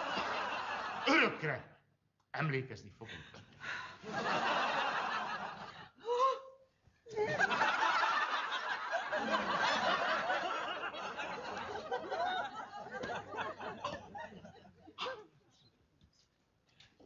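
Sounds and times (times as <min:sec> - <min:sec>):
studio audience laughing: 0:00.0 - 0:01.1, 0:03.7 - 0:06.0, 0:07.1 - 0:15.0.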